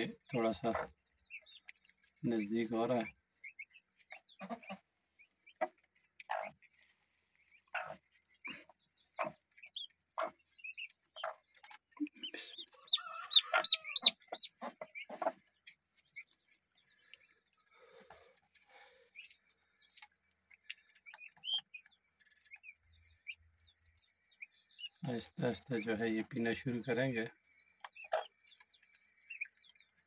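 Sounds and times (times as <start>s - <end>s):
hen clucking: 0.0s - 16.4s, 24.4s - 29.6s
high poult peeps: 0.0s - 30.0s.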